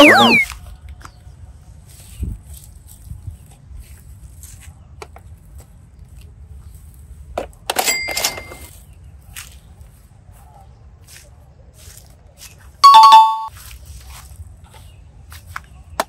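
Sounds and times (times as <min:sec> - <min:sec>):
brief high ringing tone: 0:00.0 - 0:00.5, 0:12.8 - 0:13.5.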